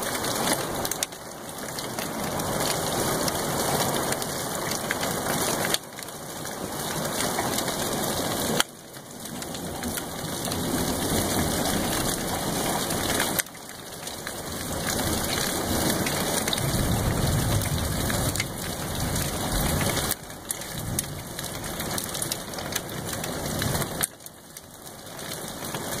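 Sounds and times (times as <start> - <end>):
steady rain: 0.0 - 26.0
low rolling thunder: 15.0 - 20.1.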